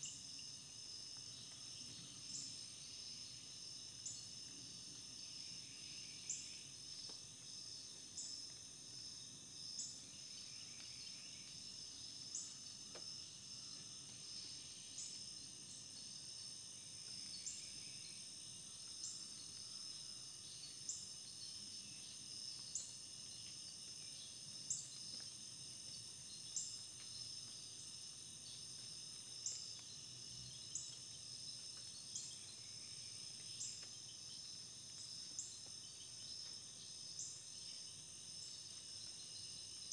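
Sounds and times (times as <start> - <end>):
insect chirping: 0.0 - 39.9
insects trilling: 0.0 - 39.9.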